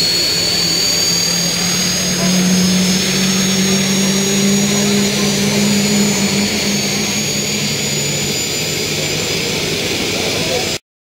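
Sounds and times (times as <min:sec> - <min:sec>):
low engine tone: 0:00.0 - 0:10.8
model jet engine whine: 0:00.0 - 0:10.8.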